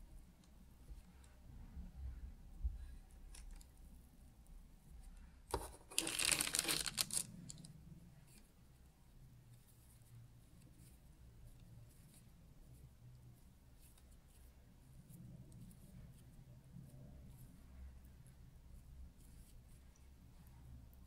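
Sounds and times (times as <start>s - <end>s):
soft handling of cookie dough: 0.0s - 21.0s
baking parchment crinkling: 5.5s - 7.7s.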